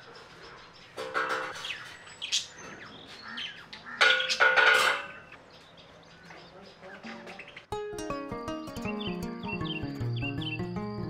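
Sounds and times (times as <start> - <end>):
birds calling: 0.0 - 11.0.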